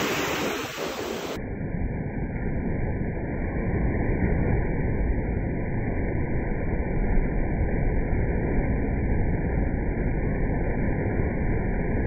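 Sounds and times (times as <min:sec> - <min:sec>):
surf washing over rock: 0:00.0 - 0:01.4.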